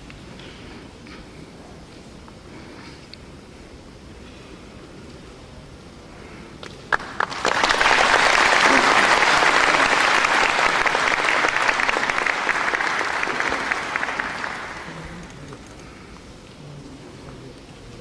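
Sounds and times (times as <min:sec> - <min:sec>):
audience applauding: 0:06.9 - 0:15.8.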